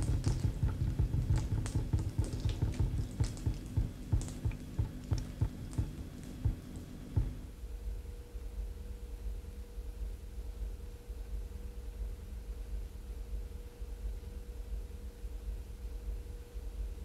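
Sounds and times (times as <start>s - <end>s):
water dripping onto concrete: 0.0s - 7.4s
faint steady hum: 0.0s - 17.0s.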